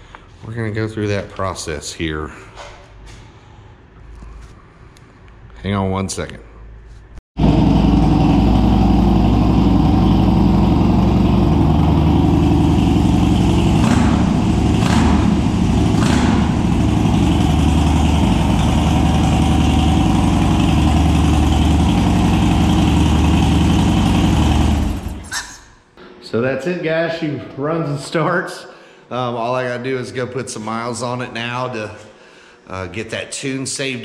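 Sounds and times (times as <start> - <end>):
motorcycle engine idling: 7.4 - 25.2
short sharp engine sounds: 7.4 - 25.6.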